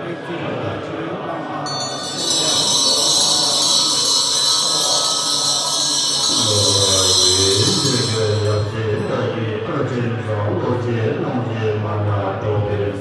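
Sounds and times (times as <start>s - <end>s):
monks chanting: 0.0s - 13.0s
hand bell ringing: 1.7s - 9.3s.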